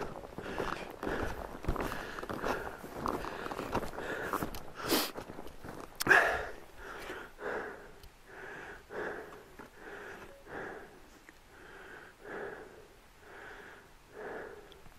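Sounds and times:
snowshoe footsteps crunching snow: 0:00.0 - 0:07.2.

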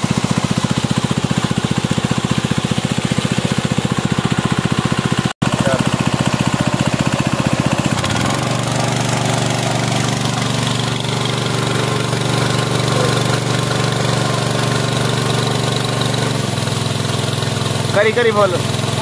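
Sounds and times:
petrol engine running: 0:00.0 - 0:19.0
water rushing and splashing: 0:06.4 - 0:19.0.

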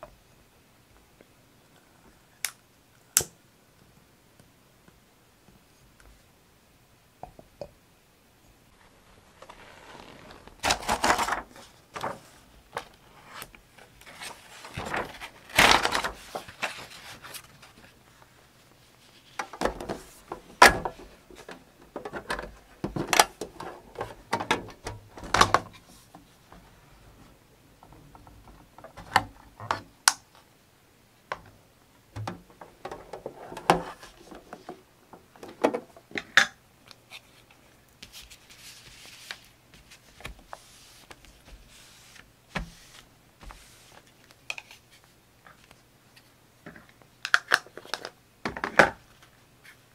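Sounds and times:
paper rustling: 0:08.7 - 0:27.2, 0:32.2 - 0:34.9, 0:37.0 - 0:45.8.

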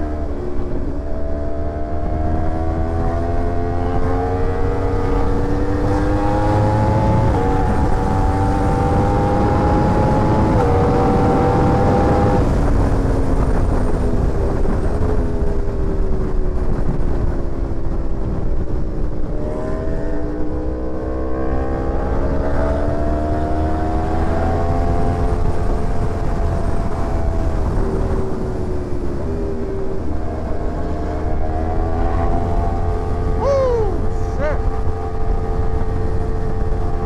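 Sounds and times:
motorcycle engine revving: 0:00.0 - 0:13.9, 0:19.2 - 0:28.4.

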